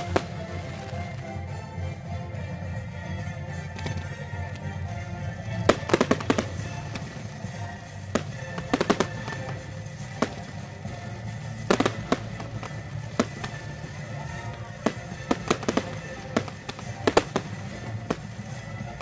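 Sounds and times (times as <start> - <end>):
fireworks bangs: 0.0 - 1.2, 3.8 - 4.1, 5.5 - 19.0
music: 0.0 - 19.0.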